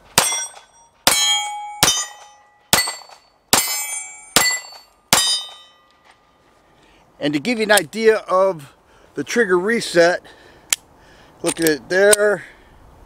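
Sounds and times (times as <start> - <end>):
steel plate targets ringing: 0.1 - 5.9.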